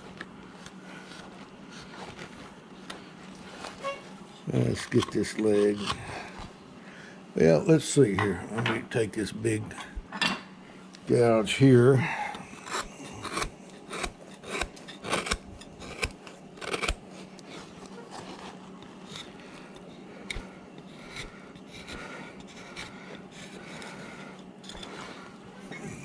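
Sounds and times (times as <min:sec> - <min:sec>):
gouge cutting wood: 0:12.6 - 0:17.1, 0:20.2 - 0:25.2
gouge scraping wood: 0:12.6 - 0:25.4.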